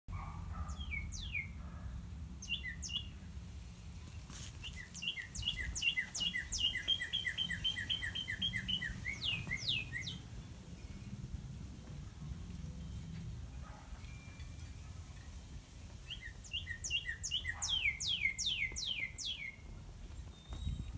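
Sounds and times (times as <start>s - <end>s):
cardinal singing whistles: 4.7s - 10.2s, 16.1s - 19.6s.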